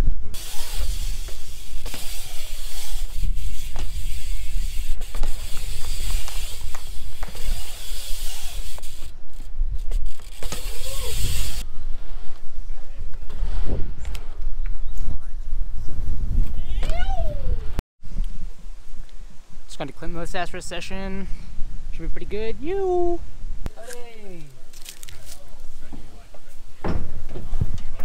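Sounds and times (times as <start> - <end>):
bike tyres hissing over concrete: 0.0 - 12.5
wind rumble on microphone: 0.0 - 19.7, 26.8 - 28.0.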